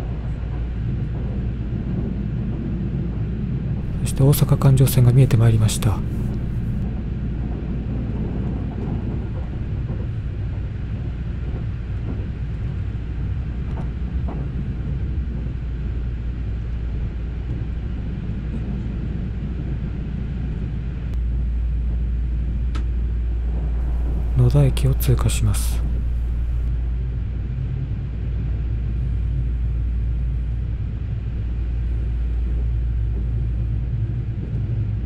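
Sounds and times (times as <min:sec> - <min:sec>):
train rumble from inside: 0:00.0 - 0:27.0, 0:28.0 - 0:35.0.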